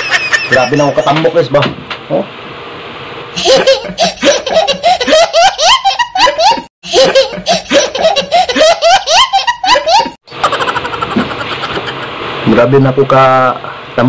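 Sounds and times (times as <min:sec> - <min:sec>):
young child laughing: 0:00.0 - 0:01.2, 0:03.4 - 0:12.2.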